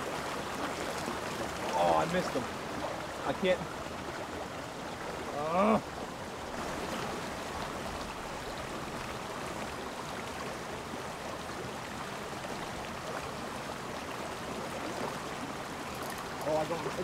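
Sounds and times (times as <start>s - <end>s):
stream rushing over cascade: 0.0s - 17.0s
person exclaiming: 5.3s - 5.8s.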